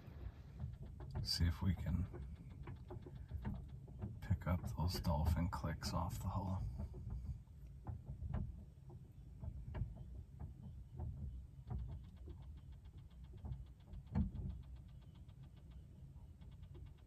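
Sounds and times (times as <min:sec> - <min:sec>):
knocks against hull: 0:00.0 - 0:15.0
low rumble of water: 0:00.0 - 0:17.0
dolphin echolocation clicks: 0:11.8 - 0:17.0.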